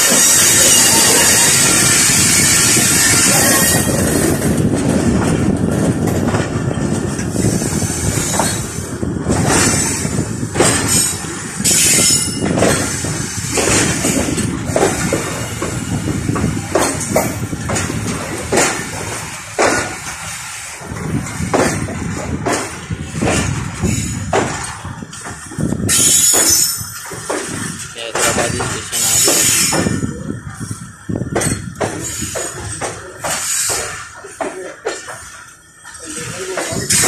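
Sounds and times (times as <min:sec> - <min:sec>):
train wheels clattering over rails: 0:00.0 - 0:37.0
hiss: 0:18.6 - 0:21.8, 0:33.2 - 0:35.4.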